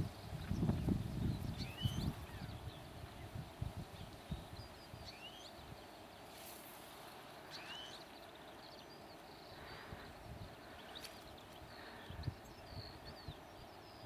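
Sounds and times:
faint bird chirps: 0.1 - 14.0
outdoor hiss: 2.7 - 12.2.

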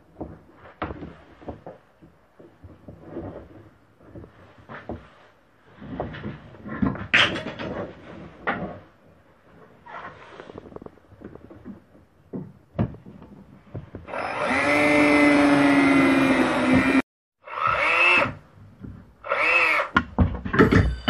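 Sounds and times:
cordless drill into wood: 14.1 - 18.4, 19.2 - 20.0.

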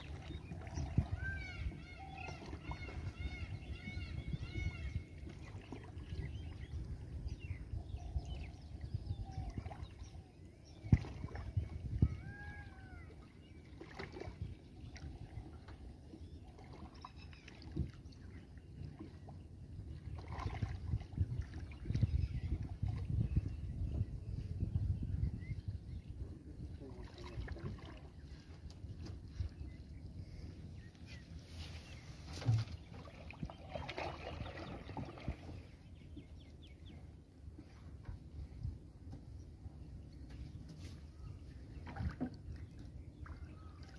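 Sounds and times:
water lapping and splashing: 0.0 - 7.4, 8.4 - 24.0, 26.6 - 36.7, 40.2 - 43.9
water splashing and dripping: 32.3 - 35.6, 41.8 - 43.9.

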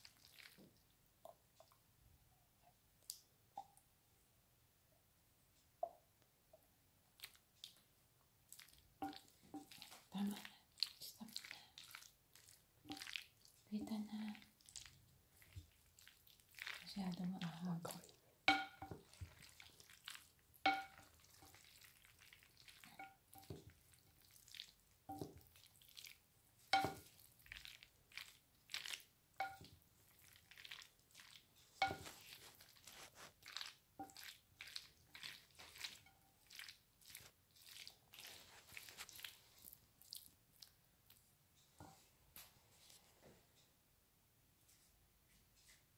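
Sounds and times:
spoon mixing wet pasta: 0.0 - 1.9, 7.1 - 43.0
spoon knocking glass bowl: 18.5 - 19.0, 20.7 - 21.0, 26.8 - 27.0, 29.4 - 29.7, 31.8 - 32.1.

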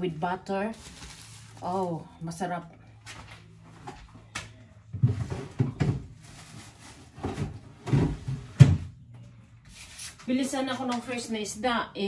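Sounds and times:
heavy thuds of groceries: 4.9 - 8.9.

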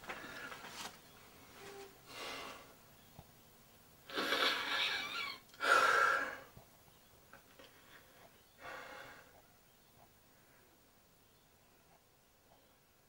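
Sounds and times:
man breathing heavily: 5.6 - 6.5, 7.8 - 9.4.

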